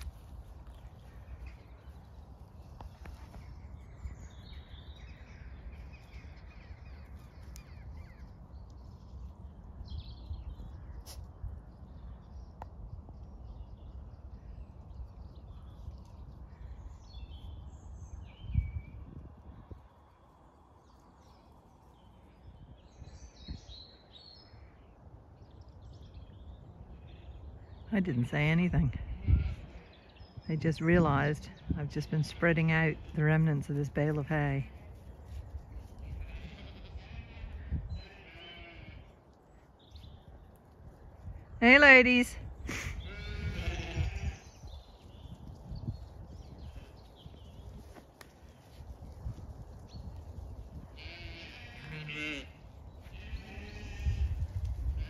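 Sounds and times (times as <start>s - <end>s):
birds chirping: 0.0s - 19.2s, 20.1s - 55.0s
low outdoor rumble: 25.4s - 55.0s.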